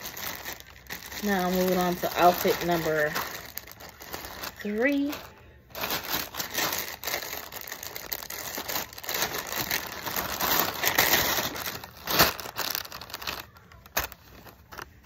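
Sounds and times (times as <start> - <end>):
plastic bag crinkling: 0.0 - 15.0
sharp plastic crackle: 0.0 - 15.0.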